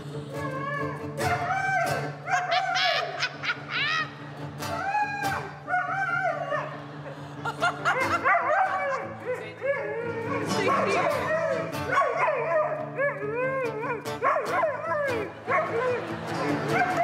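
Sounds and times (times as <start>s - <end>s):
acoustic guitar strumming: 0.0s - 17.0s
dog barking: 7.9s - 9.2s, 10.2s - 13.2s, 14.2s - 16.1s, 16.7s - 17.0s.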